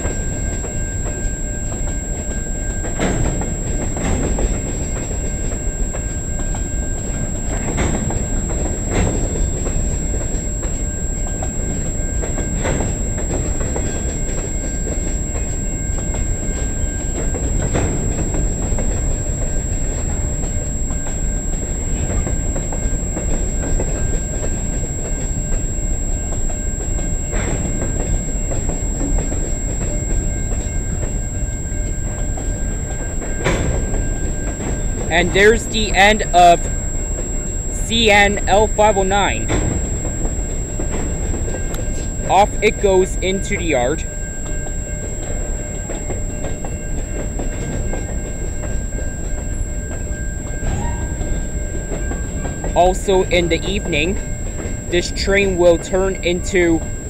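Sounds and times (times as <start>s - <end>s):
train cars clanking: 0.0s - 57.0s
train wheels rumbling on rail: 0.0s - 57.0s.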